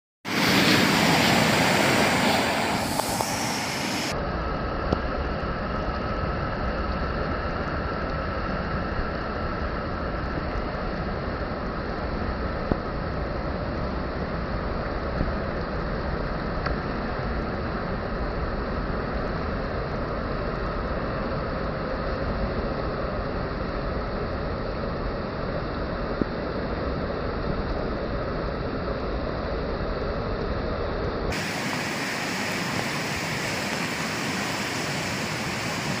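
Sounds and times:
floodwater rushing over rocks: 0.3s - 4.2s, 31.3s - 36.0s.

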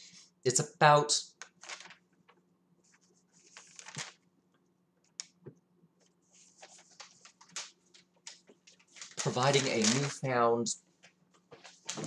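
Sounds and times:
soft rustles: 1.6s - 4.2s, 6.0s - 10.3s, 11.0s - 12.0s.

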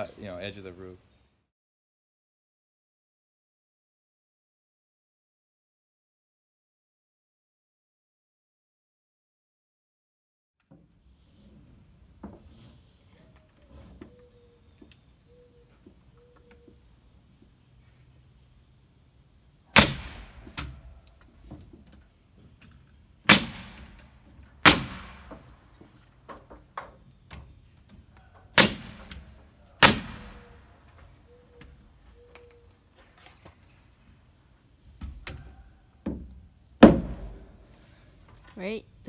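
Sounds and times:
nail gun shots: 19.7s - 20.9s, 23.3s - 25.6s, 28.5s - 30.7s, 36.8s - 37.6s.

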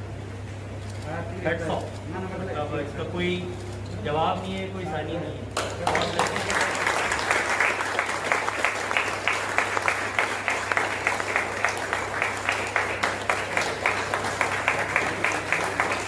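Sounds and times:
people clapping: 5.5s - 16.0s.

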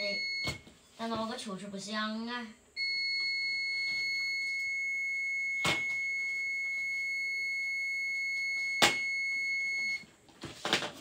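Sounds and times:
multimeter continuity beep: 0.0s - 0.6s, 2.8s - 10.0s.

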